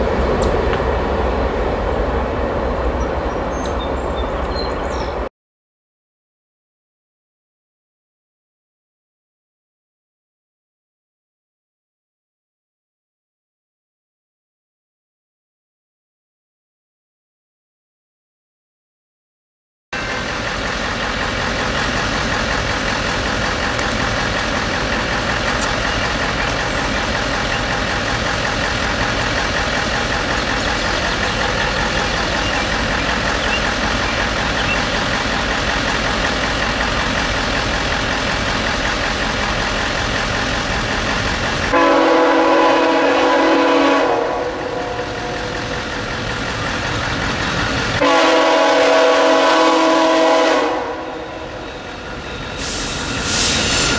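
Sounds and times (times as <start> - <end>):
train horn blast: 41.7 - 45.5, 48.0 - 51.8.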